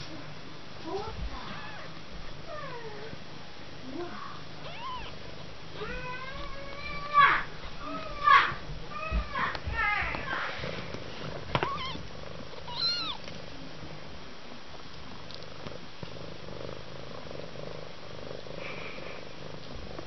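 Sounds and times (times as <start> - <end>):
cat purring: 10.0 - 14.2, 14.8 - 20.0
high squeaky cat calls: 12.7 - 13.2.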